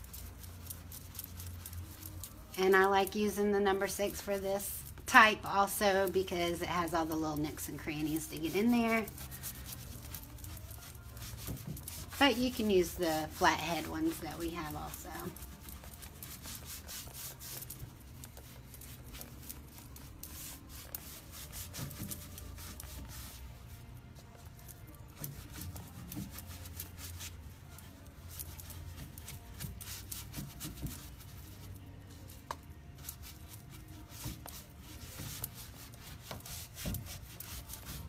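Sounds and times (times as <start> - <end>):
paint brush scrubbing wood: 6.0 - 23.8, 28.2 - 32.3, 33.0 - 38.0.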